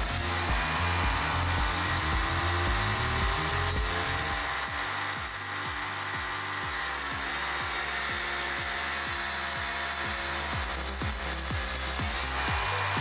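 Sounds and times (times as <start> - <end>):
chainsaw mill cutting log: 0.0 - 13.0
background music with beat: 7.6 - 13.0.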